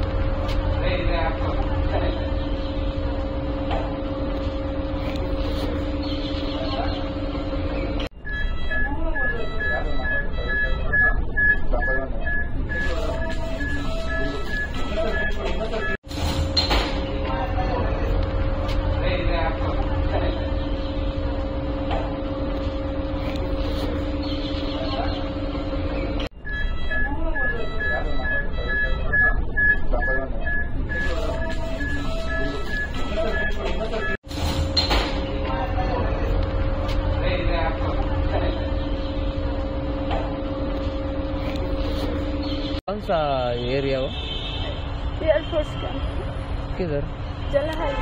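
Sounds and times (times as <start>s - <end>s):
mechanical hum with two tones: 0.0s - 43.1s
low rumble: 17.0s - 24.7s, 35.2s - 42.5s.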